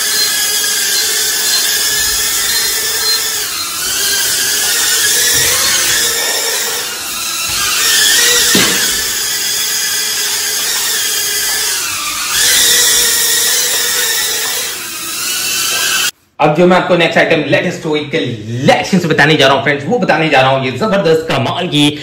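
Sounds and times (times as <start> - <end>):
toy drone propellers whining: 0.0 - 16.2.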